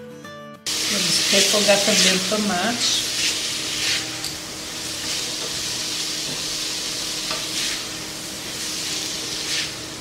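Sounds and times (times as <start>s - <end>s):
food sizzling in a pot: 0.7s - 10.0s.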